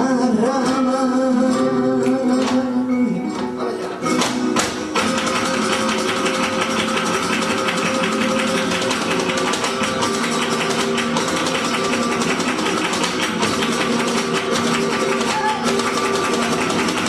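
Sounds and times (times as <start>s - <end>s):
flamenco guitar playing: 0.0s - 17.0s.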